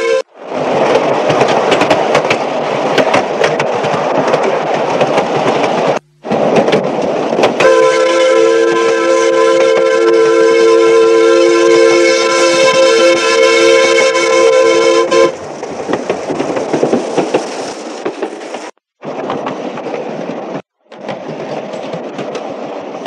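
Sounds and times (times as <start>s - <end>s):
wheels clicking over rail joints: 0.4s - 7.8s, 15.1s - 23.0s
steam whistle chord: 7.6s - 15.3s.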